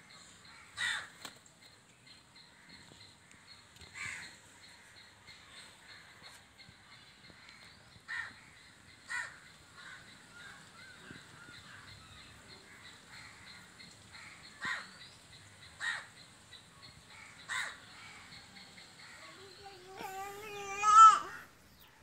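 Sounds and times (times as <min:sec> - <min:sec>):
small birds chirping: 0:00.0 - 0:22.0
crow cawing: 0:00.5 - 0:01.2, 0:08.1 - 0:10.6, 0:12.8 - 0:14.9, 0:15.8 - 0:16.1, 0:17.1 - 0:18.2.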